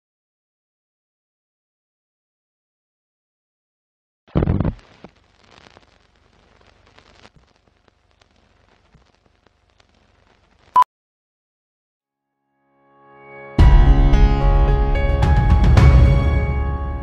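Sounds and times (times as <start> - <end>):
film crackle and clicks: 4.4 - 10.8.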